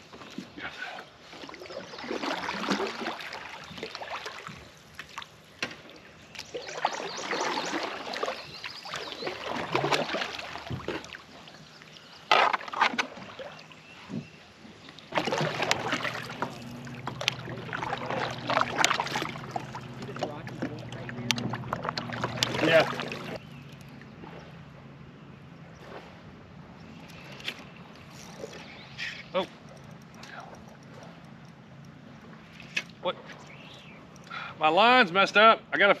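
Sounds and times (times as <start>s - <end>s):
water splashing around kayak: 0.0s - 34.1s
steady low hum: 15.2s - 32.7s.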